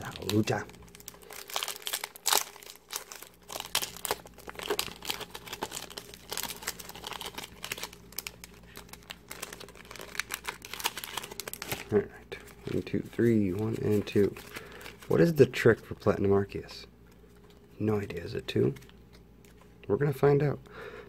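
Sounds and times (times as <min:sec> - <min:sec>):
foil wrapper tearing and crinkling: 0:00.0 - 0:12.0.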